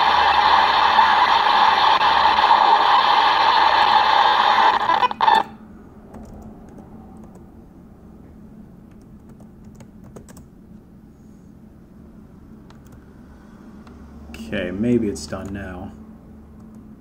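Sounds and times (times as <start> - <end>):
loud steady data noise hiss: 0.0 - 6.1
keyboard clicks: 8.9 - 10.5.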